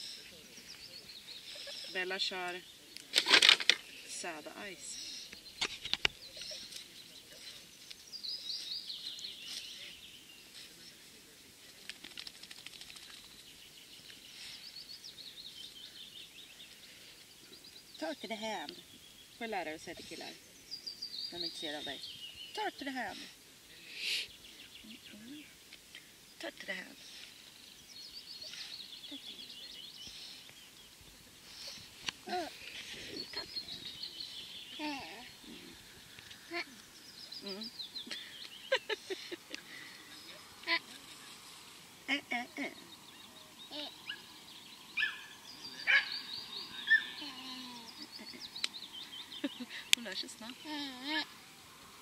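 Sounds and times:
small birds twittering: 0.0s - 52.0s
songbird trilling: 42.8s - 50.7s.

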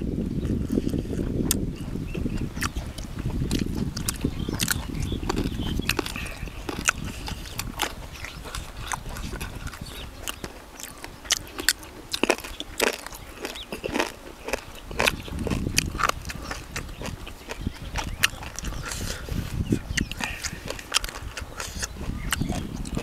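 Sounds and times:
wet chewing smacks: 0.4s - 23.0s.

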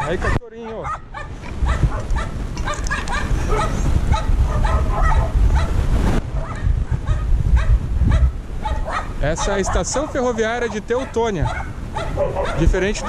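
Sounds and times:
dog barking rapidly: 0.0s - 13.0s.

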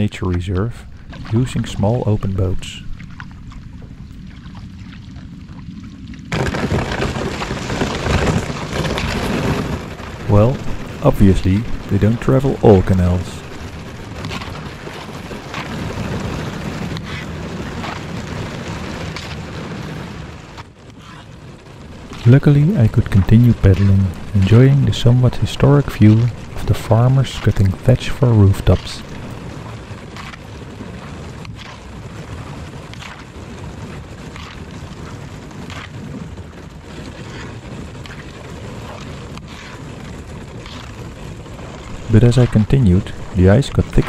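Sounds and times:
steady low rumble: 0.0s - 20.7s, 21.5s - 44.0s
paddle strokes through thin ice: 0.7s - 44.0s
paddle splashing in water: 0.9s - 1.7s.

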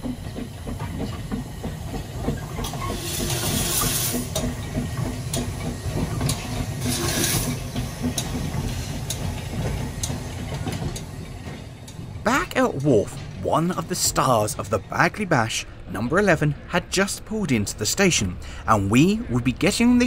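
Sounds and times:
wheels clicking: 0.0s - 13.2s
steam locomotive rumbling: 0.0s - 20.0s
steam hissing: 2.4s - 9.4s.

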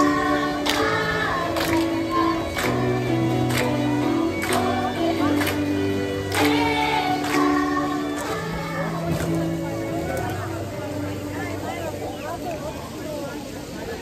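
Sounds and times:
children's choir singing: 0.0s - 10.6s
amplified backing music: 0.0s - 12.7s.

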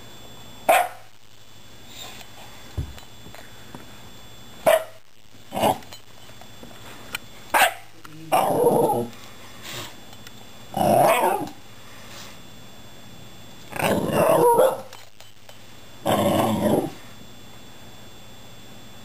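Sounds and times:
dog barking: 0.7s - 1.1s, 4.6s - 5.0s, 7.5s - 7.9s, 11.0s - 11.6s, 14.3s - 14.9s.

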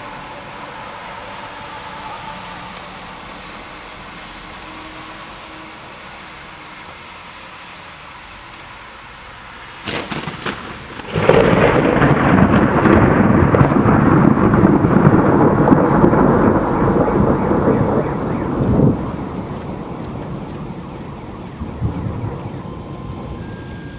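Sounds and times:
thunder crack: 9.8s - 23.6s
rolling thunder rumble: 9.8s - 23.9s.

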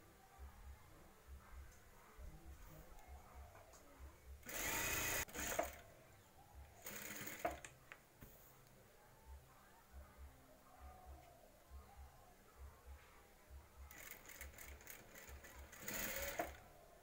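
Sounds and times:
sewing machine stitching: 4.4s - 5.8s, 6.8s - 7.7s, 13.9s - 16.6s.

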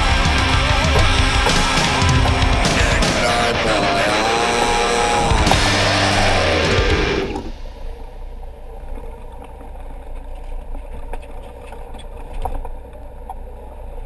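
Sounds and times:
boat engine humming: 0.0s - 14.0s.

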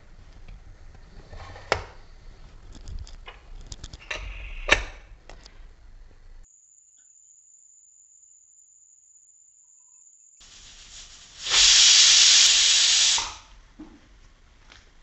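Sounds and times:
pressure cooker steam hiss: 10.4s - 13.6s.

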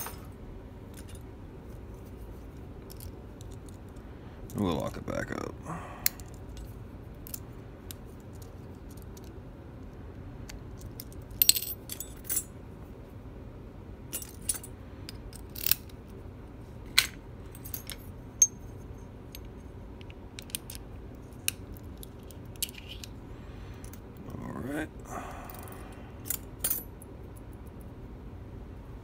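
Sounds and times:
small metal parts clicking: 2.8s - 4.0s, 6.0s - 9.4s, 10.5s - 12.5s, 14.1s - 16.2s, 19.3s - 23.2s.

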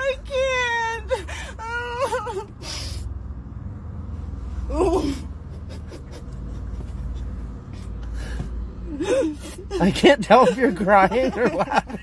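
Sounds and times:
low car rumble: 0.0s - 12.0s
woman whimpering: 4.7s - 5.3s, 8.9s - 9.9s.

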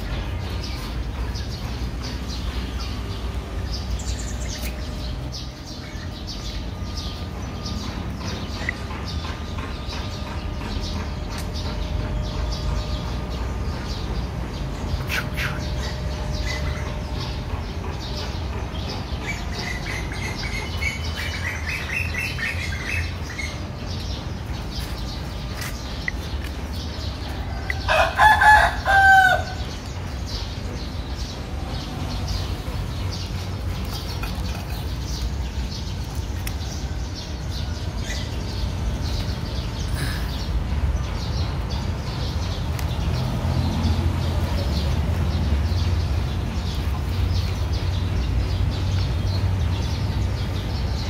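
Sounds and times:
rooster crowing: 27.5s - 29.6s.

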